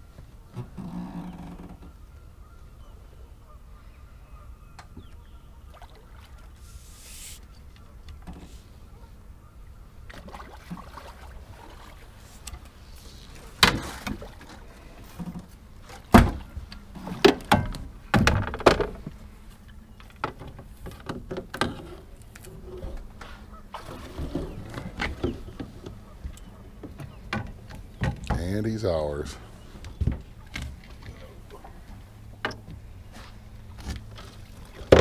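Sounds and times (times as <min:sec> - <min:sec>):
knocks and thumps on metal boat: 0:15.2 - 0:19.1, 0:23.8 - 0:28.6, 0:34.8 - 0:35.0.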